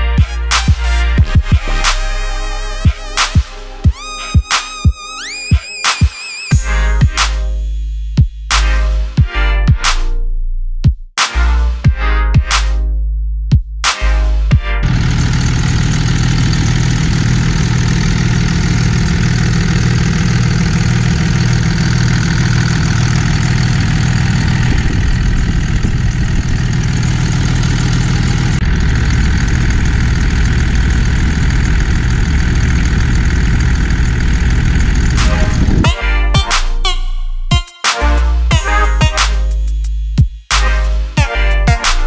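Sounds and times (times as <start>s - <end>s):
music: 0.0s - 15.0s, 35.1s - 42.0s
diesel engine idling: 14.8s - 37.5s.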